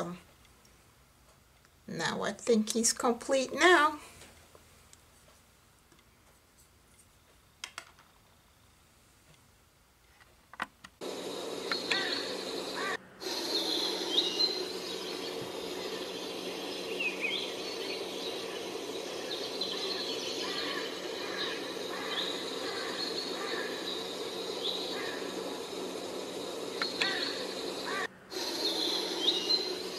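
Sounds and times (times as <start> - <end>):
background hiss and hum: 0.0 - 29.9
birds chirping and calling: 11.5 - 29.9.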